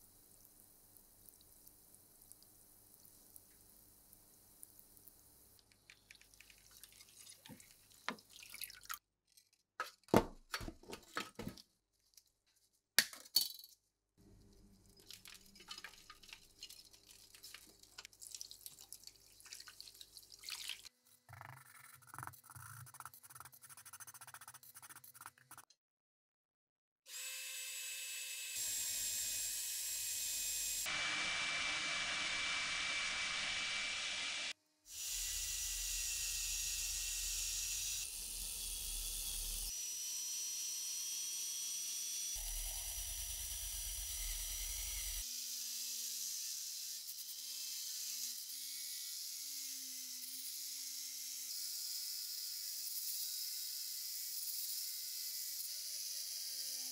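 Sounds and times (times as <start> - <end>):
water splashing: 5.9 - 9.0.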